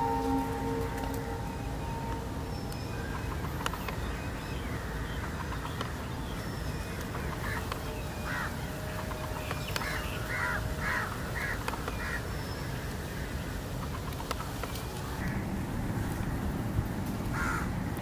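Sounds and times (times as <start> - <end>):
low background rumble: 0.0 - 18.0
crow cawing: 7.2 - 12.3, 17.3 - 17.7.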